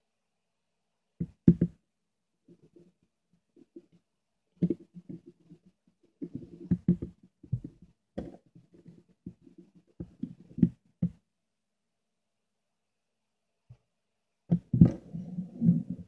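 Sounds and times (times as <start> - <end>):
clicks and knocks on plastic case: 1.2 - 1.8, 6.2 - 8.5, 14.5 - 15.1.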